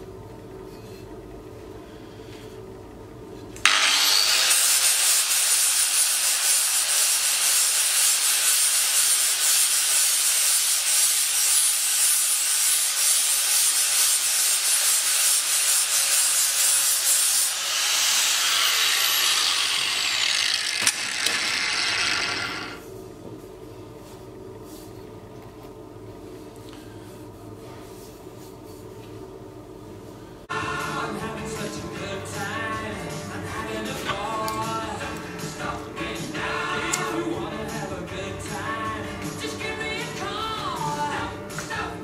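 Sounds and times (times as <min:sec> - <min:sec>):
angle grinder grinding metal: 0:03.6 - 0:22.8.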